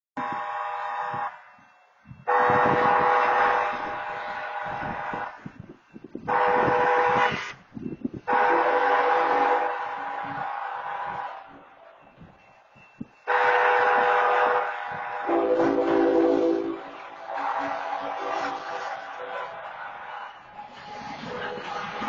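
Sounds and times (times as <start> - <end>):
locomotive air horn blasts: 0.2 - 1.5, 2.2 - 5.6, 6.2 - 7.6, 8.3 - 11.4, 13.2 - 19.6.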